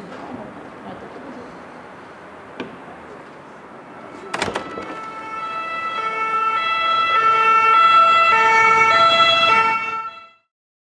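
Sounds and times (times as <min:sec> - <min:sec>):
two-tone ambulance siren: 0:03.8 - 0:10.5.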